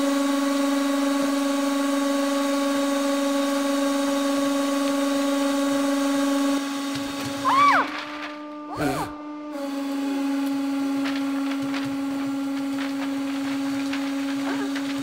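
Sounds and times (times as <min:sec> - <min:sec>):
hydraulic press humming: 0:03.4 - 0:15.0
object cracking: 0:10.9 - 0:15.0.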